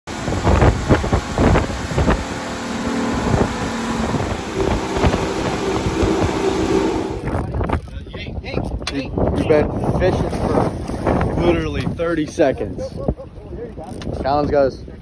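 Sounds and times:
water rushing: 0.1s - 7.4s
hull slapping waves: 0.1s - 7.6s, 10.0s - 12.8s
outboard motor running: 0.1s - 7.9s
wind on microphone: 0.1s - 15.0s.

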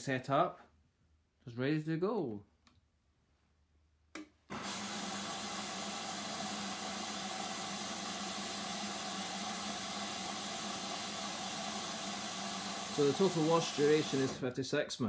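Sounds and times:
water rushing into washing machine: 4.5s - 14.4s.

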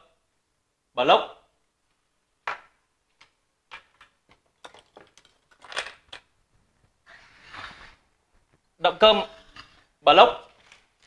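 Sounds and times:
plastic parts clicking and knocking: 2.4s - 6.4s
plastic parts clattering: 3.2s - 6.4s.

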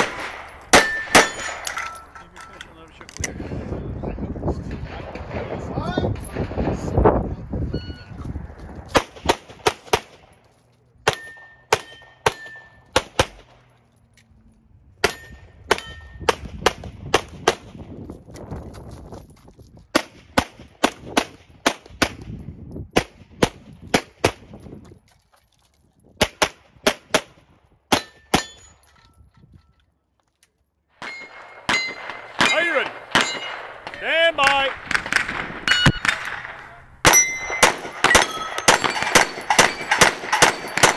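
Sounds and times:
pistol shots: 0.0s - 1.8s, 8.9s - 10.3s, 11.0s - 13.7s, 15.0s - 17.8s, 31.0s - 40.9s
steel targets ringing: 0.1s - 2.6s, 11.1s - 13.0s, 15.0s - 16.3s, 31.0s - 34.0s, 35.6s - 40.9s.

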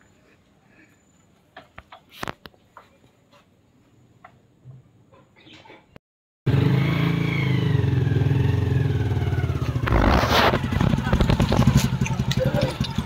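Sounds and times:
motorcycle engine running: 6.5s - 13.0s.

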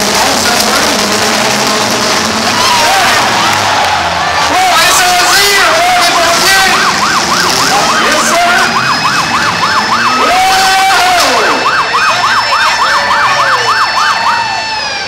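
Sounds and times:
steady background din: 0.0s - 15.0s
siren yelping: 2.2s - 15.0s.

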